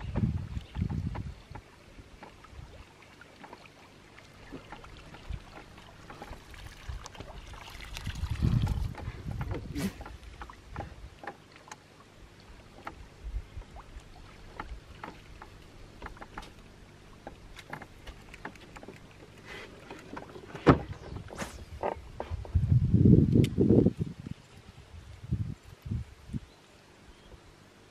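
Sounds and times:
light clicks and knocks: 12.6 - 13.1, 14.5 - 22.6.

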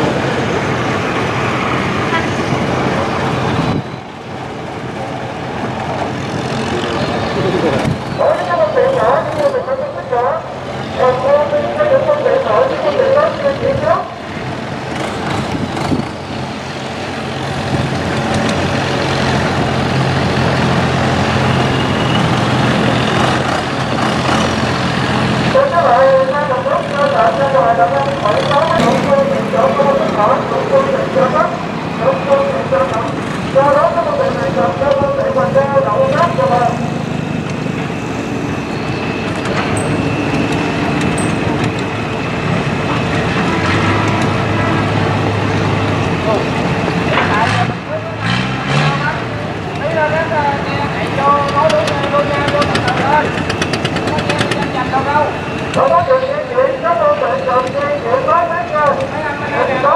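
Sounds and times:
boat engine running hard: 49.9 - 59.9.

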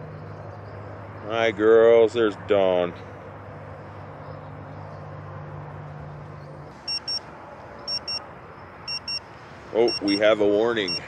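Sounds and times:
short high beeps: 6.9 - 7.2, 7.9 - 8.2, 8.9 - 9.2, 9.8 - 11.0.

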